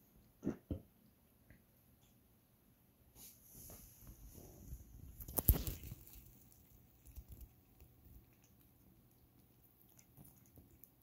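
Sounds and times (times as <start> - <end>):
cat rustling and sniffing: 3.1 - 11.0.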